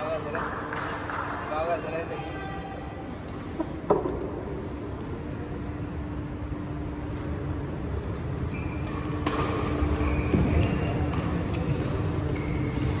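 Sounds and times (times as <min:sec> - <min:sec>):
sports hall hum: 0:00.0 - 0:13.0
shoes squeaking on court: 0:08.4 - 0:13.0
racket hitting shuttlecock: 0:08.8 - 0:12.5.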